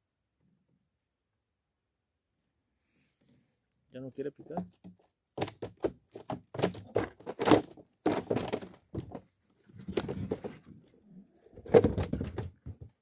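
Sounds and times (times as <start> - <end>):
knocks and taps in wooden boat: 4.4 - 9.2.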